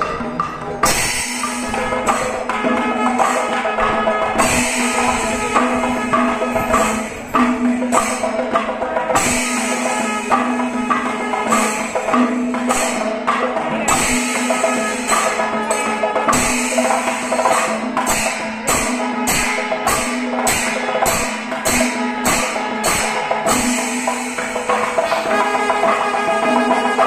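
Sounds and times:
drums beaten with sticks: 0:00.0 - 0:27.0
hand cymbals clashing: 0:00.0 - 0:27.0
horns sounding held notes: 0:02.0 - 0:08.1, 0:24.9 - 0:27.0.

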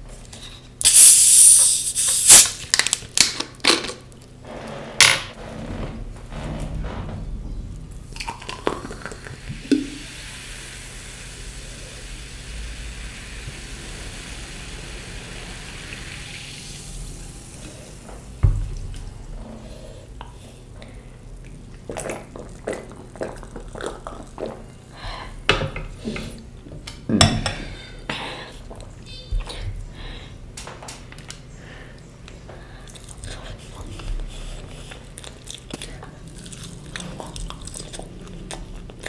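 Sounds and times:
water running: 0:04.5 - 0:19.2
thud: 0:05.4 - 0:09.8, 0:18.4 - 0:19.2.

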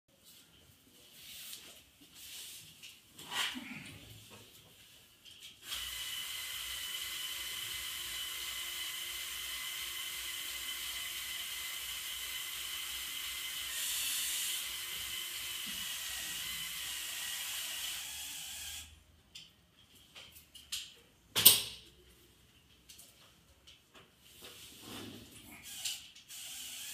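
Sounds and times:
toy motor whine: 0:05.7 - 0:18.9, 0:25.6 - 0:26.9.

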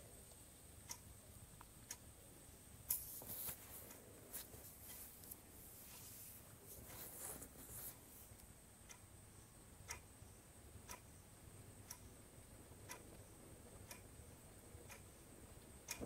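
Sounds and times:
clock ticking: 0:00.0 - 0:03.0, 0:08.8 - 0:16.0.

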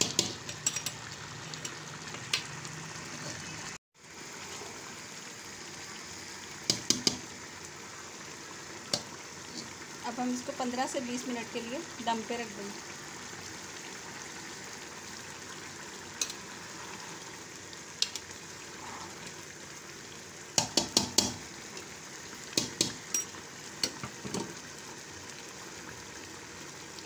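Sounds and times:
spoon clinking against metal pot: 0:00.0 - 0:01.0, 0:23.1 - 0:24.0
pot bubbling and hissing: 0:00.0 - 0:27.0.

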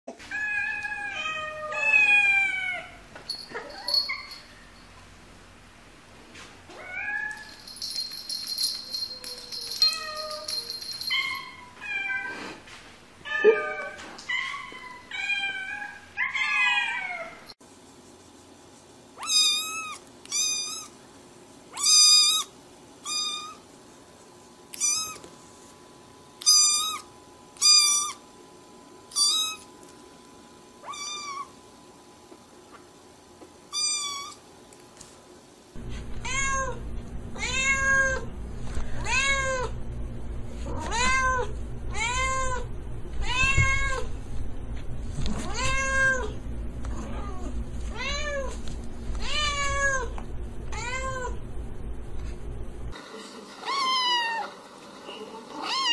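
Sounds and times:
cats meowing: 0:00.3 - 0:03.0, 0:24.7 - 0:25.2, 0:37.4 - 0:38.3, 0:40.7 - 0:44.1
steady low hum: 0:07.4 - 0:11.8, 0:35.0 - 0:53.0.

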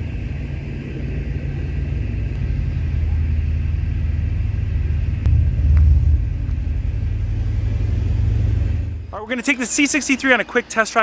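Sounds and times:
car engine idling: 0:02.2 - 0:09.4.

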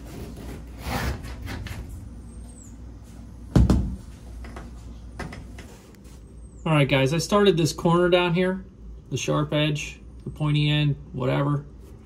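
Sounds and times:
heavy thump: 0:03.5 - 0:04.1.

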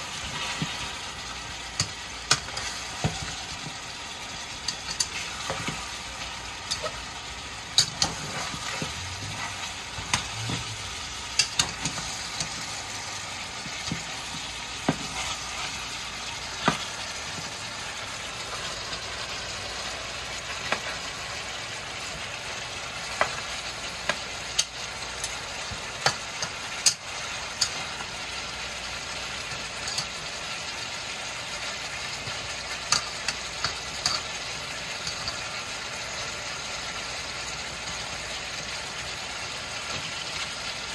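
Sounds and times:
meat sizzling in a pot: 0:00.0 - 0:40.9
metal spatula scraping a pot: 0:07.8 - 0:12.6.

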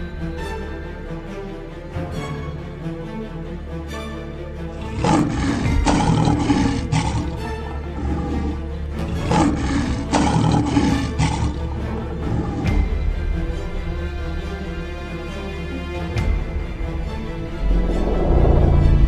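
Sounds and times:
dramatic background music: 0:00.0 - 0:19.0
lion roaring: 0:04.8 - 0:13.0.

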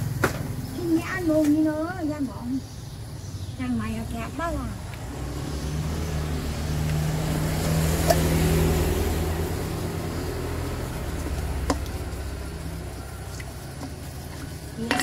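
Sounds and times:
vehicle engine hum passing: 0:03.3 - 0:14.9
spoon knocking metal bowl: 0:14.8 - 0:15.0.

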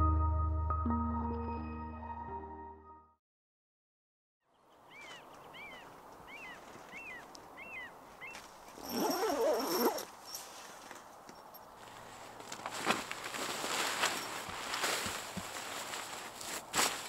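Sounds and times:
small bird chirping: 0:04.6 - 0:08.4
faint marsh ambience: 0:04.6 - 0:08.9.

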